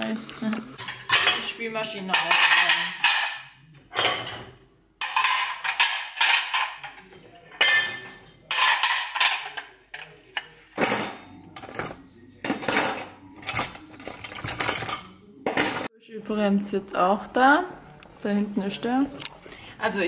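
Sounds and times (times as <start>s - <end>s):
ceramic plates clinking: 0.7s - 15.9s.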